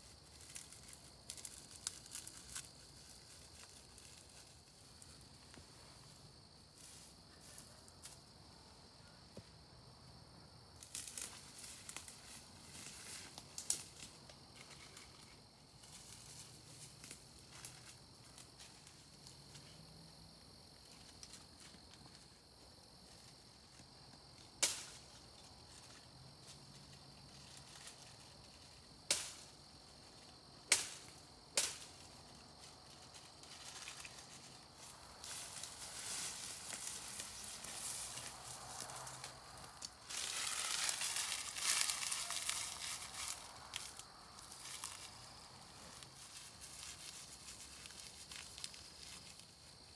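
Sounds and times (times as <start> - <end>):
rustling through dry brush: 0.0 - 8.3, 10.8 - 19.7, 20.8 - 49.9
dry wood snapping: 24.6 - 25.0, 30.7 - 31.9.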